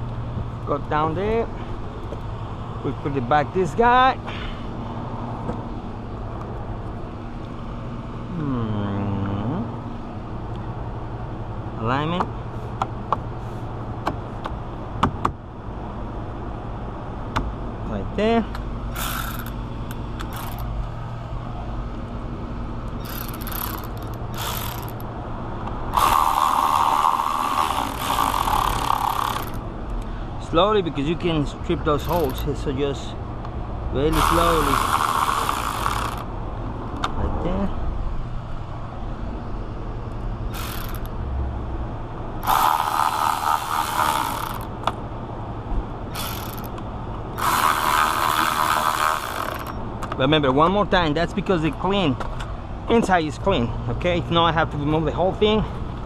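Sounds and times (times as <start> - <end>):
electric ratchet motor running: 18.9 - 20.7, 22.9 - 25.2, 25.9 - 29.7, 32.0 - 32.5, 34.1 - 36.3, 40.5 - 41.2, 42.4 - 44.8, 46.1 - 49.8
short rattles: 18.9 - 20.8, 23.0 - 25.1, 25.9 - 29.6, 31.9 - 32.6, 40.5 - 41.2, 42.4 - 45.0, 46.1 - 50.2.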